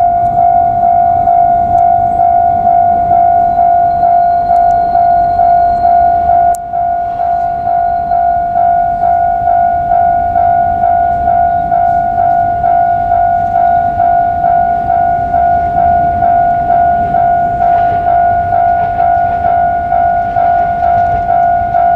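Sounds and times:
level-crossing warning bell: 0.0 - 21.9.

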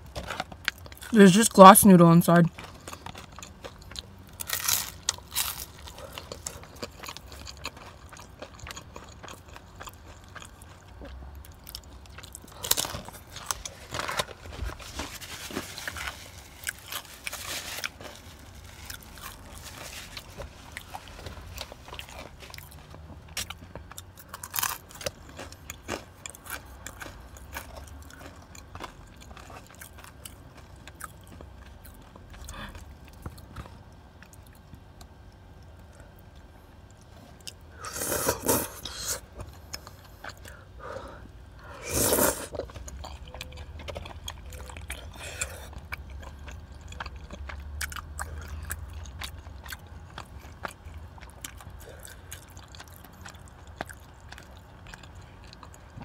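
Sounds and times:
chewing: 2.5 - 56.0
crunchy bites into fried snack: 2.6 - 31.6.

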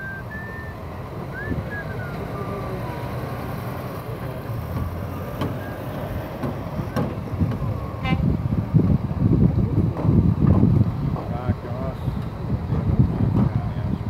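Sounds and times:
trucks driving past: 0.0 - 14.0
distant horn toot: 7.8 - 8.4.

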